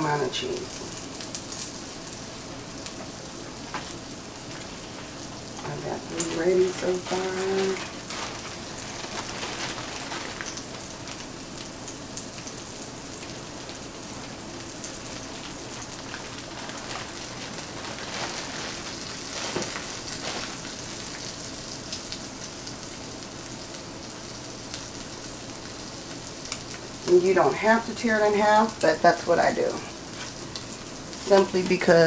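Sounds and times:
sausages sizzling in a frying pan: 0:00.0 - 0:32.0
plastic bag rustling: 0:03.6 - 0:11.7, 0:13.2 - 0:21.8, 0:29.7 - 0:32.0.

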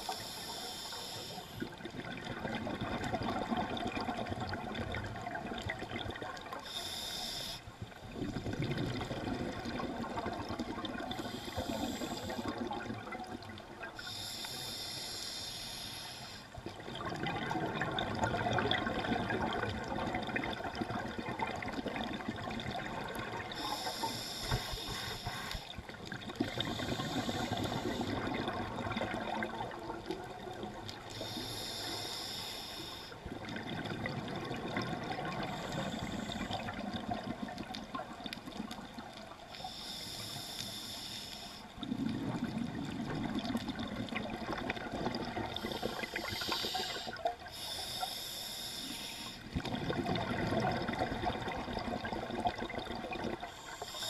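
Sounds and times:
regulator hiss on inhalation: 0:00.0 - 0:01.7, 0:06.6 - 0:07.8, 0:11.1 - 0:12.6, 0:14.0 - 0:16.6, 0:23.5 - 0:25.8, 0:26.5 - 0:28.4, 0:31.0 - 0:33.2, 0:35.3 - 0:36.8, 0:39.5 - 0:41.8, 0:45.4 - 0:49.5, 0:53.4 - 0:54.0
bubbling exhalations: 0:49.5 - 0:53.6.

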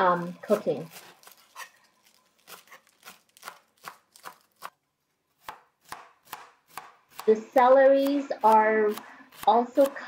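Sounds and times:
knife chopping on plastic board: 0:02.4 - 0:04.8, 0:05.4 - 0:07.3.

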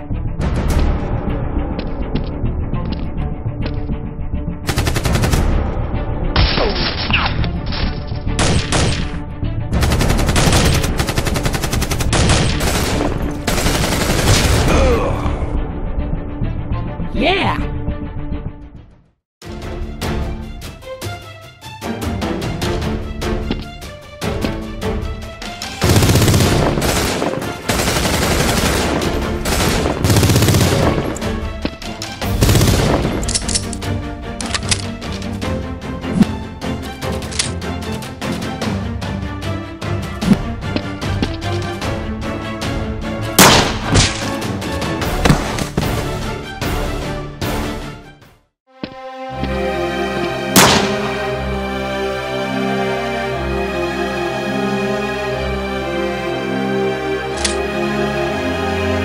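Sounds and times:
background music: 0:00.0 - 0:59.0
automatic gunfire bursts: 0:09.8 - 0:14.6, 0:25.8 - 0:31.1.

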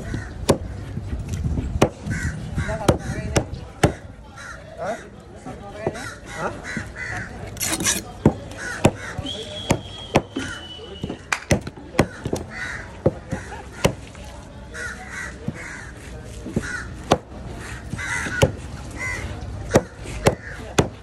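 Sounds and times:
crows cawing: 0:00.0 - 0:00.4, 0:02.0 - 0:03.2, 0:04.4 - 0:05.1, 0:05.9 - 0:07.4, 0:12.0 - 0:14.0, 0:14.8 - 0:16.0, 0:16.6 - 0:17.0, 0:17.6 - 0:20.6
cleaver chopping on wooden board: 0:11.0 - 0:12.4, 0:16.5 - 0:17.3, 0:19.7 - 0:21.0.

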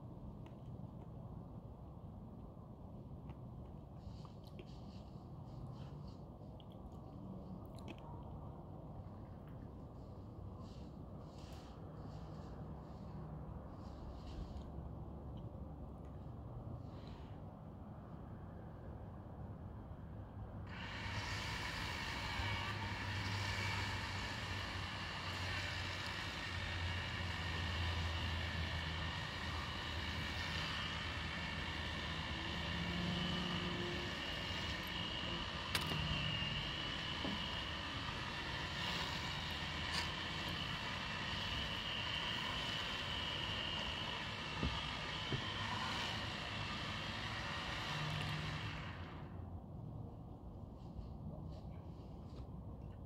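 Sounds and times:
chainsaw cutting tree: 0:20.7 - 0:49.3.

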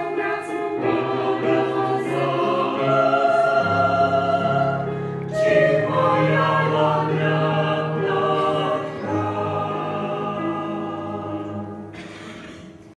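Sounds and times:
choir singing a hymn: 0:00.0 - 0:12.6.

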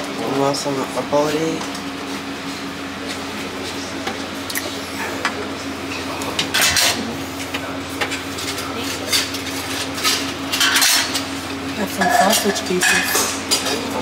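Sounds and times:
steady low hum: 0:00.0 - 0:14.0
dishes and utensils clinking: 0:05.9 - 0:07.1, 0:08.0 - 0:14.0.

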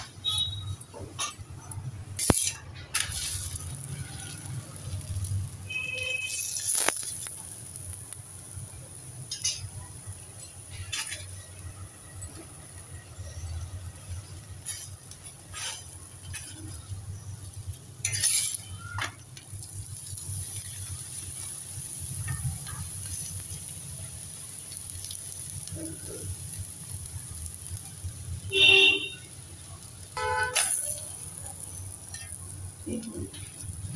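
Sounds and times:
faint sizzle of frying: 0:00.1 - 0:33.9
steel spatula scraping iron pan: 0:02.2 - 0:05.0, 0:10.7 - 0:11.4, 0:14.6 - 0:16.8, 0:18.0 - 0:19.2.

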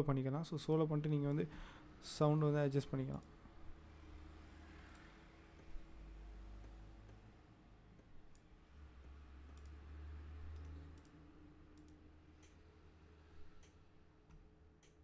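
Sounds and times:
computer mouse clicks: 0:03.1 - 0:03.3, 0:04.8 - 0:05.8, 0:08.0 - 0:09.8, 0:10.5 - 0:12.6.

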